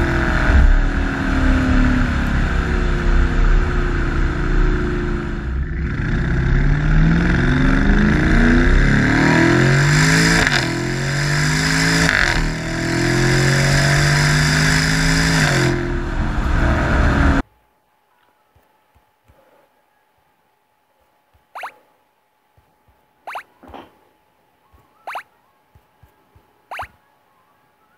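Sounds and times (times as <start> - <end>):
car exhaust under hard acceleration: 0.0 - 17.4.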